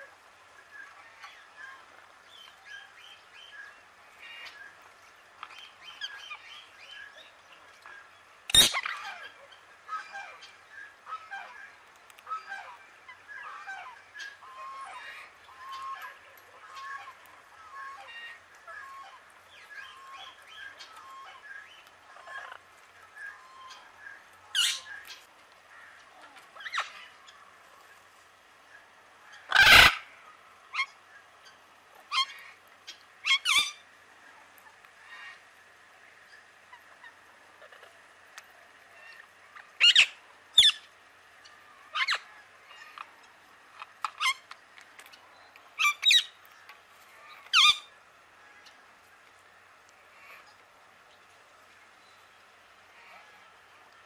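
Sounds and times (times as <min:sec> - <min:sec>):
parrots chirping and squeaking: 0:08.5 - 0:09.2, 0:24.5 - 0:25.2, 0:29.5 - 0:30.0, 0:33.2 - 0:33.8, 0:39.8 - 0:40.9, 0:43.8 - 0:45.2, 0:45.8 - 0:46.3, 0:47.4 - 0:47.9
parakeets squawking: 0:08.5 - 0:09.3, 0:24.5 - 0:25.0, 0:29.5 - 0:30.0, 0:45.8 - 0:46.3, 0:47.4 - 0:47.9
parrot harsh screeches: 0:29.5 - 0:30.0.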